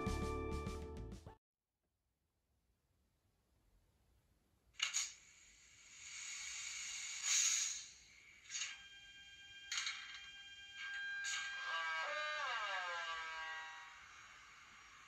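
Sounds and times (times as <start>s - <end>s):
sharp click-hiss: 4.8s - 8.9s
steady electrical whine: 4.8s - 15.0s
short hisses: 5.0s - 8.7s.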